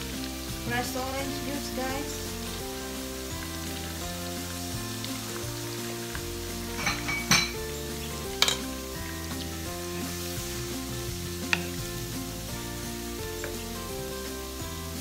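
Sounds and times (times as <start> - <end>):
food sizzling in a frying pan: 0.0 - 15.0
soft background music: 0.0 - 15.0
utensils clinking: 6.7 - 9.6.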